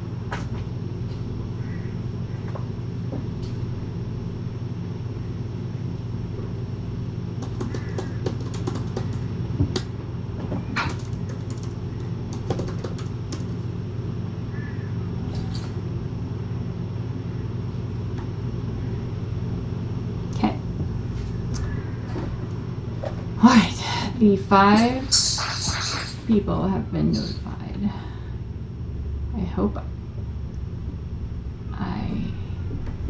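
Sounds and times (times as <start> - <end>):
steady low hum: 0.0 - 33.0
typing on laptop keyboard: 7.4 - 9.2, 10.8 - 13.6.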